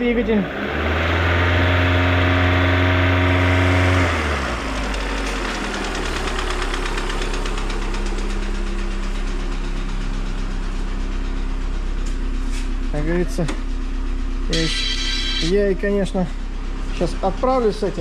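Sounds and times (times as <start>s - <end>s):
car engine revving and idling: 0.0s - 18.0s
engine knocking: 2.4s - 18.0s.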